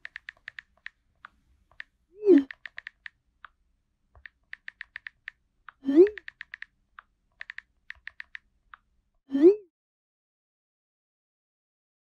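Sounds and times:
keyboard typing clicks: 0.0s - 3.6s, 4.2s - 8.5s.

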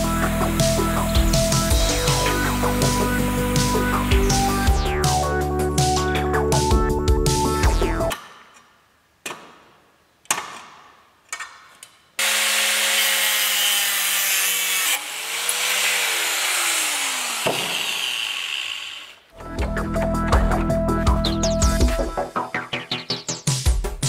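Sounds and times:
angle grinder cutting steel: 12.2s - 19.3s.

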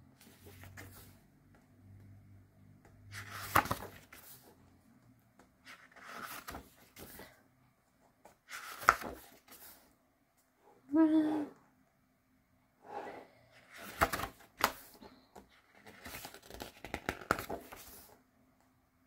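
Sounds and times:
book pages turning: 0.2s - 1.2s, 2.9s - 4.5s, 5.4s - 7.4s, 8.2s - 9.8s, 13.6s - 18.2s
paper flapping: 3.1s - 4.4s, 5.7s - 7.2s, 8.5s - 9.7s, 13.7s - 15.0s.

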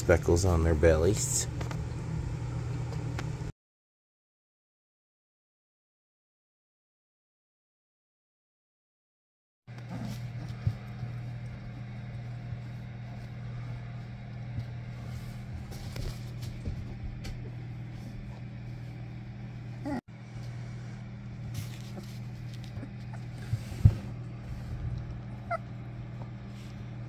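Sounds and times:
steady low hum: 0.0s - 3.5s, 9.7s - 27.0s
puppies scuffling on a blanket: 9.8s - 19.2s, 21.2s - 27.0s.

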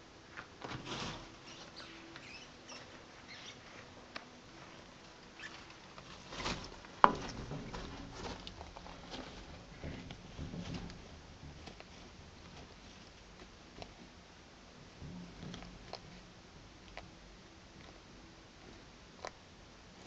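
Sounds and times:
lizard rustling on bark chips: 5.4s - 10.3s.

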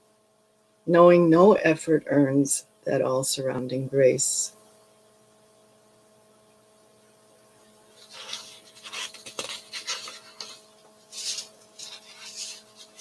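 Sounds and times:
rustling and handling noises: 7.8s - 13.0s.

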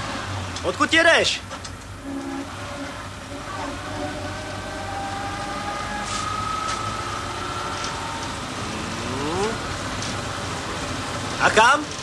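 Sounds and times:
vehicle running hum: 0.0s - 12.0s
short rising whine: 3.5s - 9.7s.

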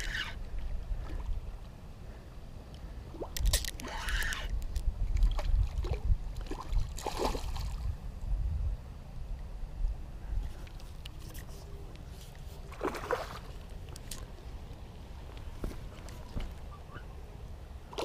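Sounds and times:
water sloshing and splashing: 3.0s - 7.9s, 12.2s - 14.4s
wind buffeting microphone: 4.4s - 8.9s.

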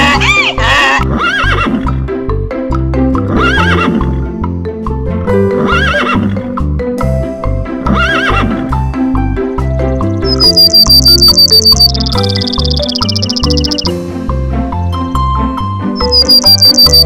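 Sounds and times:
donkey braying: 0.0s - 1.8s
horse whinnying: 0.1s - 1.8s, 3.3s - 4.0s, 5.6s - 6.4s, 7.9s - 8.6s
background music with steady beat: 1.6s - 17.0s.

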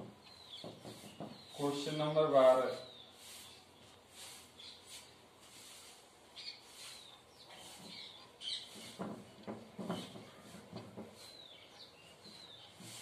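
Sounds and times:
small birds chirping: 0.0s - 13.0s
duster rubbing whiteboard: 12.2s - 13.0s.

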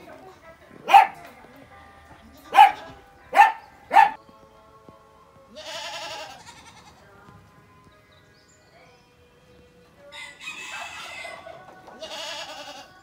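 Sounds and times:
small dog barking: 0.8s - 1.3s, 2.5s - 4.2s
goat bleating: 5.5s - 7.1s, 11.9s - 13.0s.

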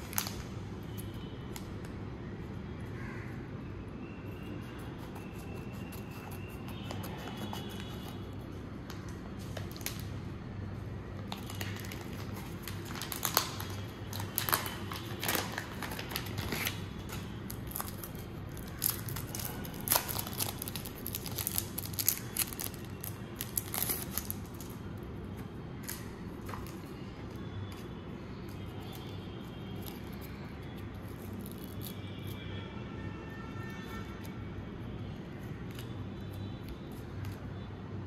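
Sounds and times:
card packaging crinkling: 4.7s - 10.1s, 11.2s - 24.8s.

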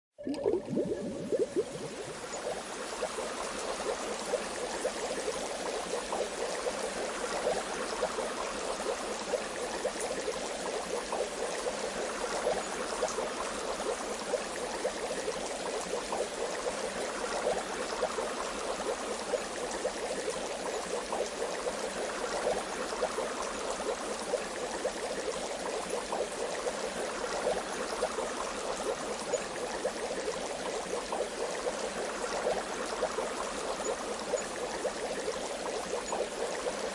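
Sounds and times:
bath water bubbling: 0.2s - 2.3s.

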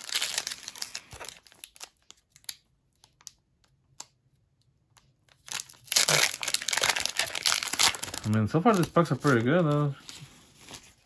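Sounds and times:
foil wrapper crinkling: 0.0s - 3.4s, 5.3s - 10.0s.

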